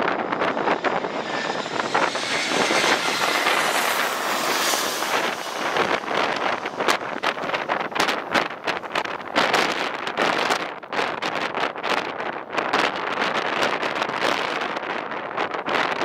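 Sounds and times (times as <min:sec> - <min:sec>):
jet airliner passing overhead: 0:00.0 - 0:10.7
wind buffeting microphone: 0:00.0 - 0:16.0.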